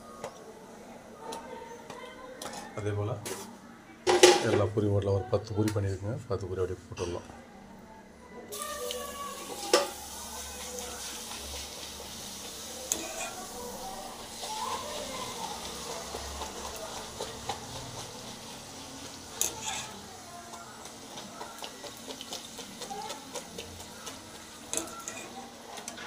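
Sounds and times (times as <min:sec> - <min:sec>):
oil sizzling: 0:08.5 - 0:26.0.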